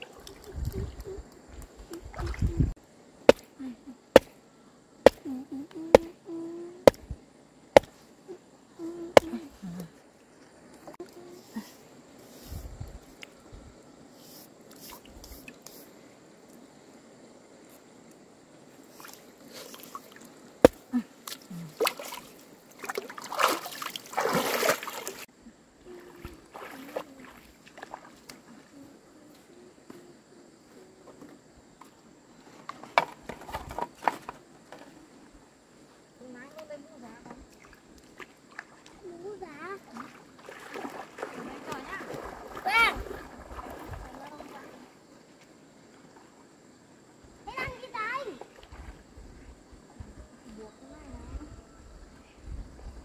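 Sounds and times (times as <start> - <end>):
water sloshing and splashing: 0.0 - 2.8, 18.9 - 25.3, 26.0 - 28.5, 37.4 - 45.0, 48.3 - 49.2.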